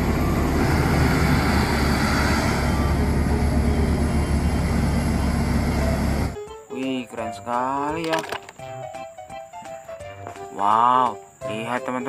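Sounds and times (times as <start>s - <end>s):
wheel loader diesel engine: 0.0s - 6.4s.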